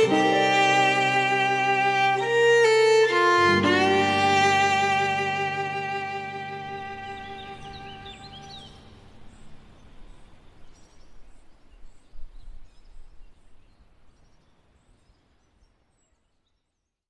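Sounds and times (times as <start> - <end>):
faint bird chirps: 5.7 - 17.0.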